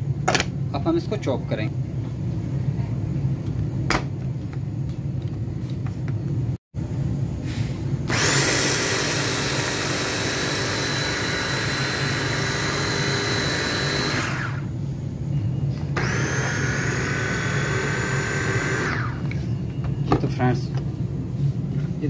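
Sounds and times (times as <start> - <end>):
electric food chopper whining: 8.1 - 14.7, 16.0 - 19.4.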